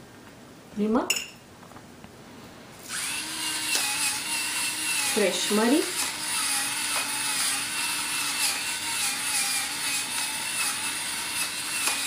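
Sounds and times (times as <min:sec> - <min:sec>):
electric pepper mill whirring: 0:02.8 - 0:12.0
pepper grinder rasping: 0:02.8 - 0:12.0.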